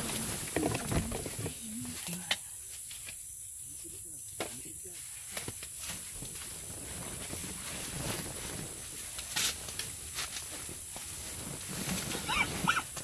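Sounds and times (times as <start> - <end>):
steady hiss: 0.0 - 13.0
soft rustles and clicks: 5.2 - 13.0.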